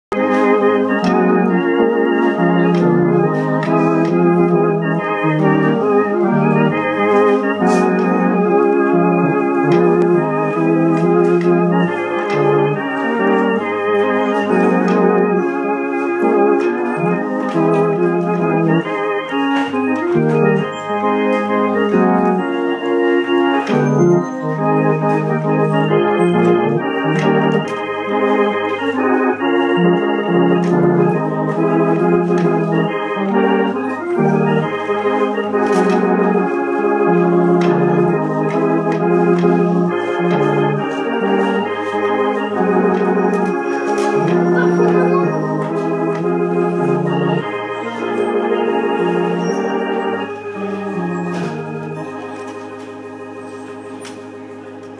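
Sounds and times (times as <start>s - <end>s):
home organ chords: 0.0s - 54.9s
organ bass line: 0.0s - 54.9s.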